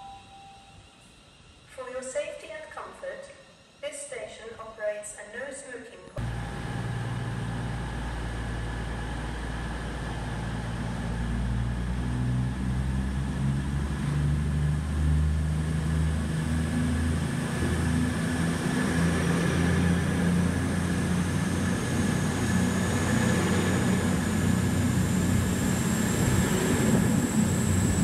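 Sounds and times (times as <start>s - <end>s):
high whine: 0.0s - 5.3s, 6.2s - 28.0s
diesel engines low hum: 6.2s - 28.0s.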